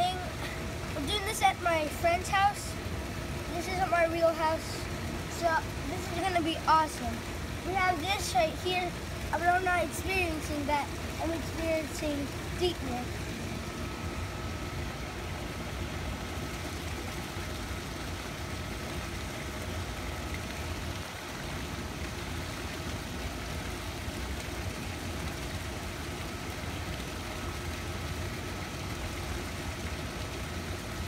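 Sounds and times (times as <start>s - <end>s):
pump hum: 0.0s - 31.0s
waterfall pouring into pool: 16.3s - 31.0s.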